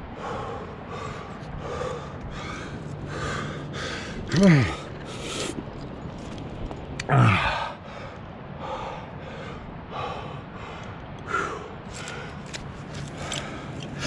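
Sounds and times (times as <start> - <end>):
person breathing hard: 0.0 - 5.6.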